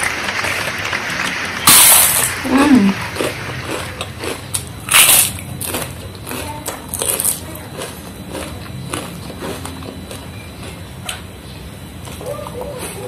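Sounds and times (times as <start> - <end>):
cracker crunching while chewed: 3.0 - 11.3, 12.0 - 13.0.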